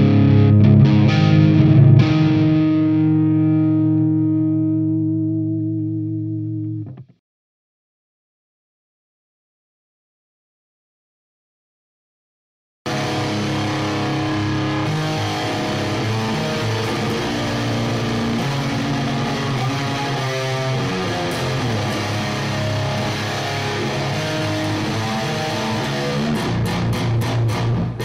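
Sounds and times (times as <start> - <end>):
distorted electric guitar: 0.0 - 7.2, 12.9 - 28.0.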